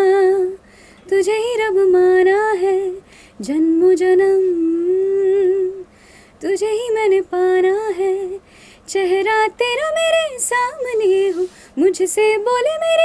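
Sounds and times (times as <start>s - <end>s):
woman singing a cappella: 0.0s - 13.0s.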